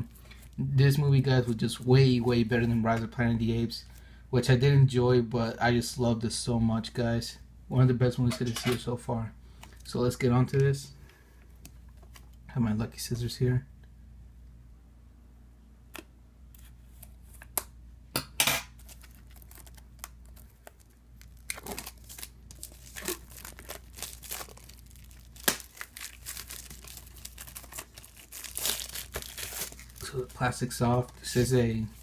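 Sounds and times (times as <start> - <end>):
plastic wrap crackling: 18.7 - 32.0.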